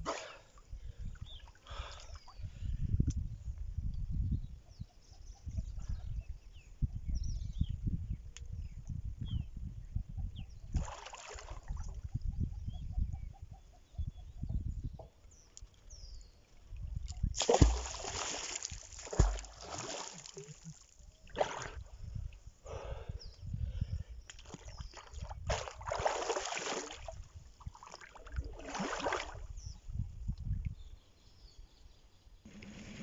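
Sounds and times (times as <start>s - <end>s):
water sloshing and splashing: 10.8s - 11.9s, 17.0s - 21.8s, 24.4s - 29.4s.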